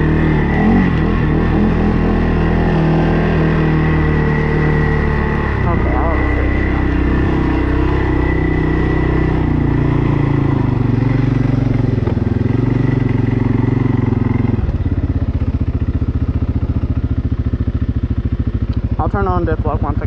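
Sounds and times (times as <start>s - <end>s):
high whine: 0.0s - 11.2s
quad bike engine running: 0.0s - 20.0s.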